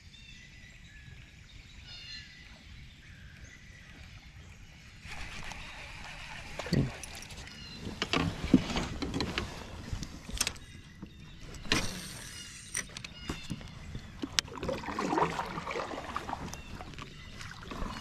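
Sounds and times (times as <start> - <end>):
fishing gear clicking and knocking: 6.6 - 14.8.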